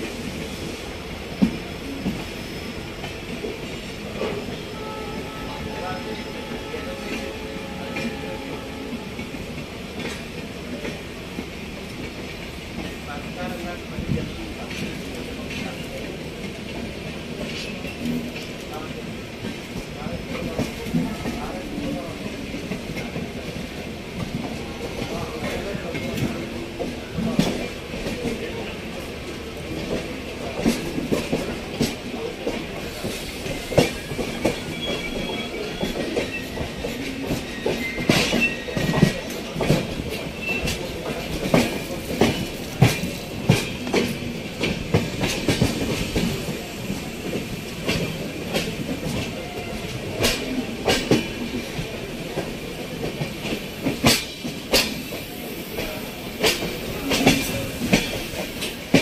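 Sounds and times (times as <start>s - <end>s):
train wheels clattering over rail joints: 29.6s - 59.0s
faint wheel squeal: 34.0s - 36.6s.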